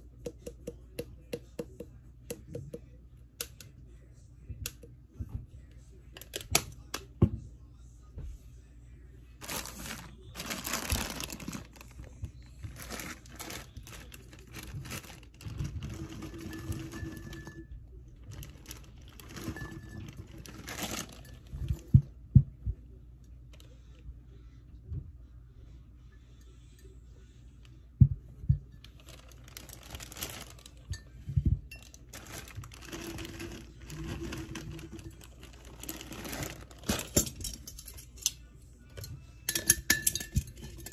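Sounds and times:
plastic bag crinkling: 9.4 - 17.6, 18.2 - 21.5, 28.8 - 30.9, 31.7 - 37.9.

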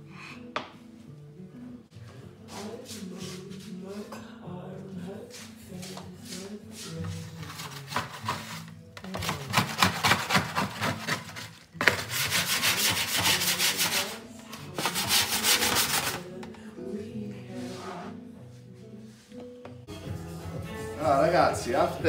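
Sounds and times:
soft background music: 0.0 - 22.0
rhythmic rubbing and scraping: 5.1 - 16.4.

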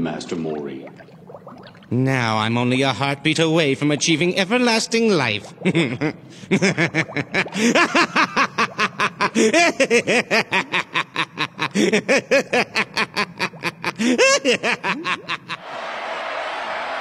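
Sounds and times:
man laughing villainously: 5.7 - 15.6.

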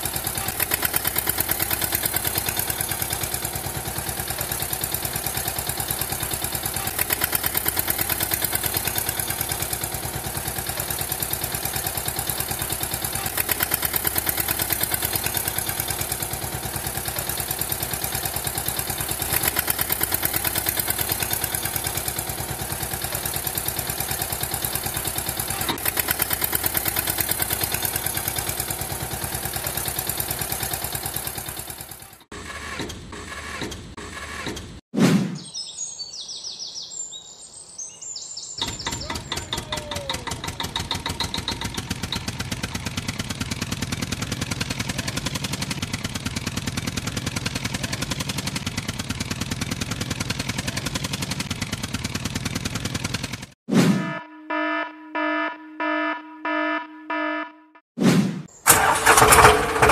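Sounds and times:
tractor engine chugging: 0.0 - 34.8, 38.6 - 57.1, 58.6 - 59.9
high chirping: 35.4 - 39.8.

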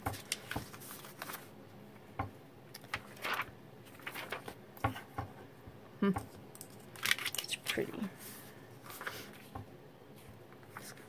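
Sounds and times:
paper sheets rustling: 0.0 - 1.6, 2.8 - 5.0, 6.9 - 9.4, 10.2 - 11.0.

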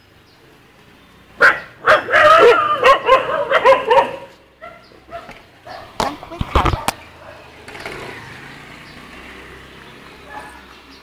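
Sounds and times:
dogs barking: 1.4 - 7.6, 10.2 - 10.8.

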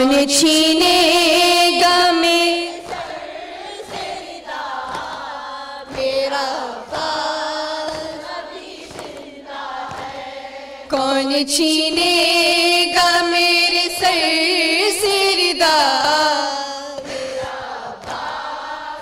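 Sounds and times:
women singing: 0.0 - 19.0
group chanting softly: 0.8 - 19.0.

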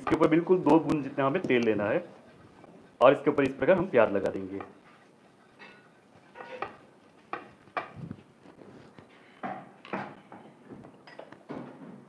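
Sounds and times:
onion scraping hot pan: 0.0 - 8.8.

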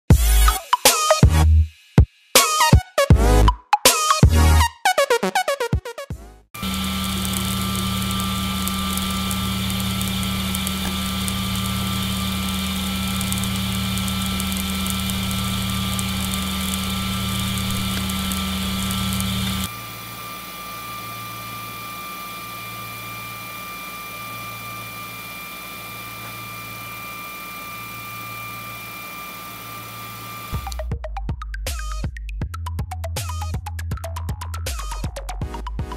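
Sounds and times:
filament crackling and popping: 6.6 - 19.7
printer fans and motors humming: 6.6 - 30.8.

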